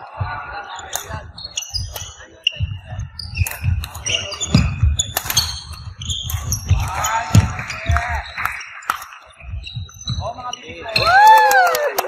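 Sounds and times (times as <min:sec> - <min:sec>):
sneaker squeaks: 0:00.6 - 0:11.1
footsteps on wooden floor: 0:05.8 - 0:08.3.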